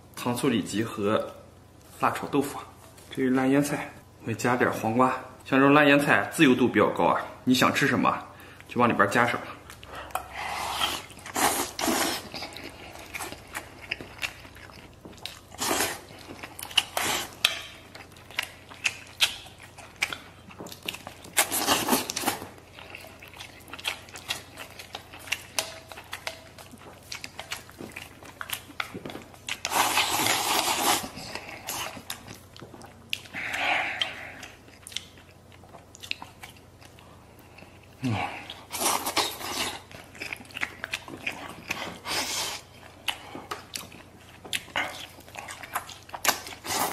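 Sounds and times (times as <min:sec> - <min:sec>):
chewing and crunching: 0:09.6 - 0:46.9.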